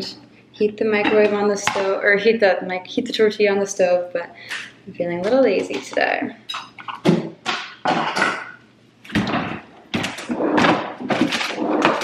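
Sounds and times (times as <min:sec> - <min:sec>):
knocks and rustles of items moved: 0:09.1 - 0:12.0.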